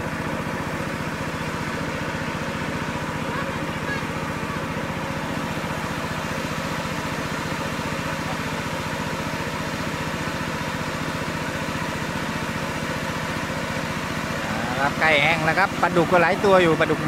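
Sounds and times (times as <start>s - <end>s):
small engine running: 0.0s - 17.0s.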